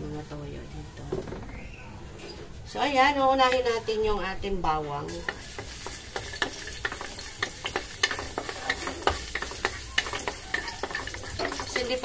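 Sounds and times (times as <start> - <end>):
garlic sizzling in hot oil: 5.1 - 12.0
wooden spatula scraping a wok: 5.1 - 12.0.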